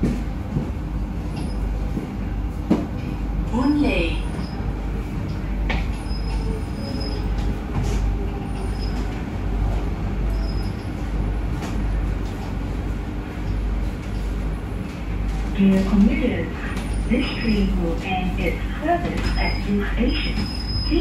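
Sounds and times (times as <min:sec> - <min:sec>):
train interior rumble: 0:00.0 - 0:21.0
faint high squeaks: 0:06.0 - 0:07.4.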